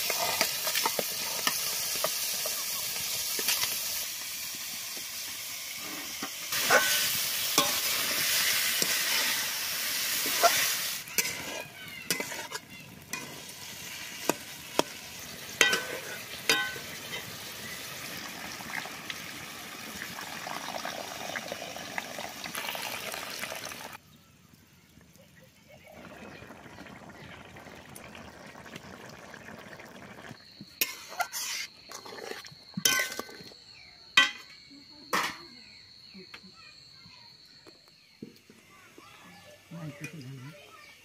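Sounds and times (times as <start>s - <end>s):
curry sizzling in a pan: 0.0s - 24.0s, 26.0s - 33.4s
quiet simmer: 0.0s - 33.8s
metal spatula scraping pan: 5.8s - 9.5s, 10.2s - 14.9s, 15.6s - 17.3s
water being poured: 12.2s - 24.0s, 26.0s - 30.4s.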